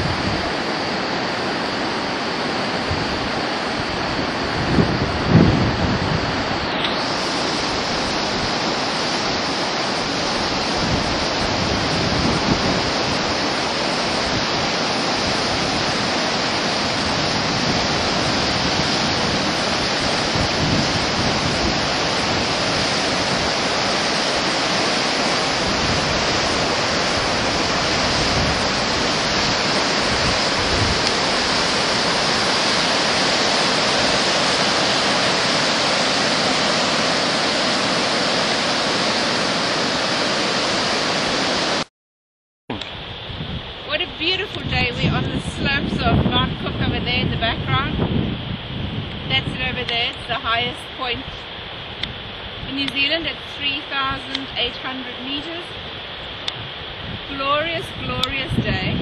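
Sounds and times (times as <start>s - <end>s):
river rushing over boulders: 0.0s - 41.9s.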